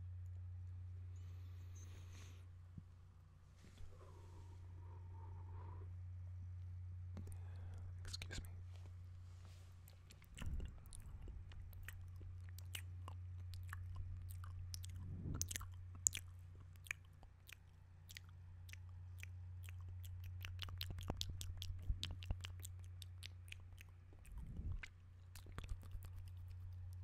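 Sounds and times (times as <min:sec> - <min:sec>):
steady low hum: 0:00.0 - 0:27.0
lip and tongue clicks: 0:09.8 - 0:27.0.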